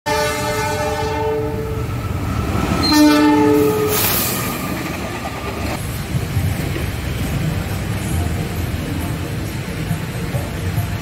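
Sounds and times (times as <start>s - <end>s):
locomotive horn blasts: 0.1s - 1.9s, 2.8s - 4.2s
train rumbling: 0.1s - 11.0s.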